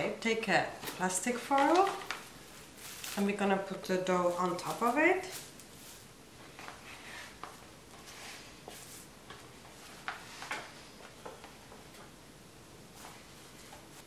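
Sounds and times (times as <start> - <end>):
cling film crinkling: 0.8 - 6.9.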